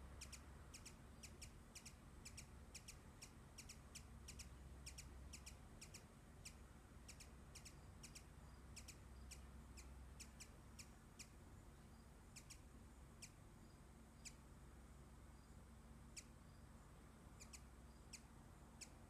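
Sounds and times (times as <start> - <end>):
hummingbird high chip notes: 0.1 - 14.5.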